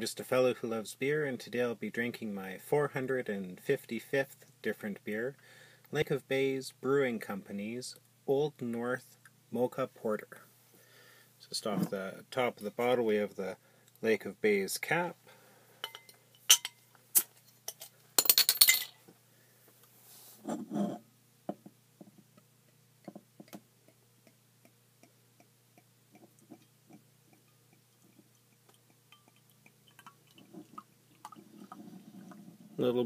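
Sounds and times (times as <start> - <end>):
glass clinks: 15.8 - 16.8
beer pouring into glass: 26.2 - 32.4.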